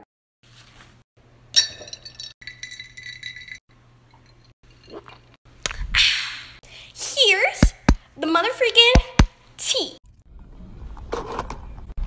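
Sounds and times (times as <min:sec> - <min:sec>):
ice clinking in a bottle: 0:01.6 - 0:05.1.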